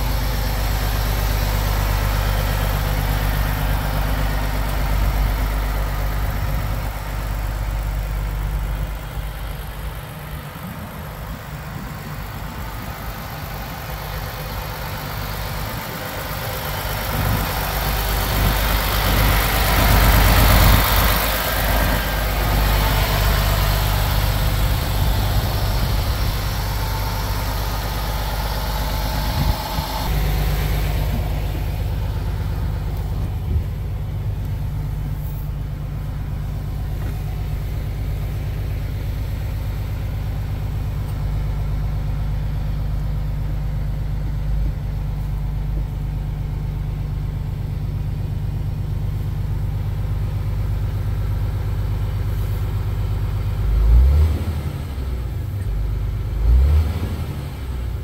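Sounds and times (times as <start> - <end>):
truck engine revving: 0.0 - 40.4, 53.5 - 58.0
diesel truck engine idling: 0.0 - 58.0.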